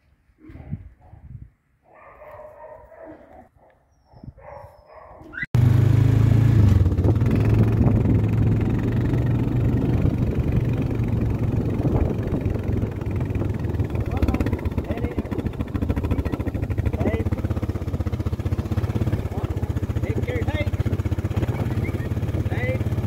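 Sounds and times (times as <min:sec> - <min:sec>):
dog whining: 0:02.0 - 0:05.6, 0:21.4 - 0:22.2
quad bike engine running: 0:05.6 - 0:23.0.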